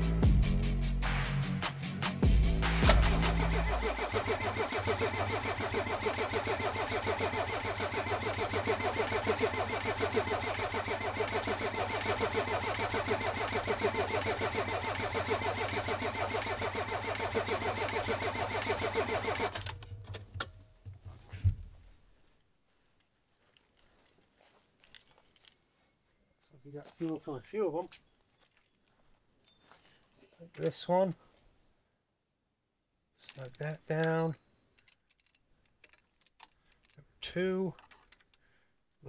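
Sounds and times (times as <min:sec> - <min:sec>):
starter motor cranking diesel engine: 0:02.5 - 0:19.9.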